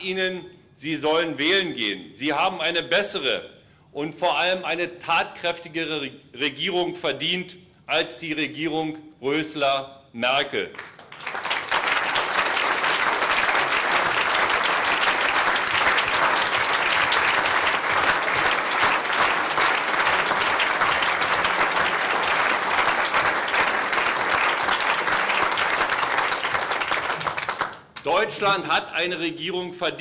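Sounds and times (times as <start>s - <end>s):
large audience applauding: 10.8s - 28.6s.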